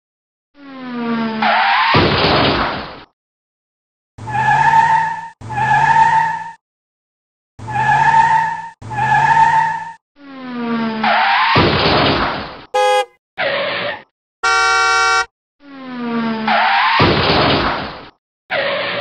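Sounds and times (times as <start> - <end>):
car sound effects: 12.8 - 13.1.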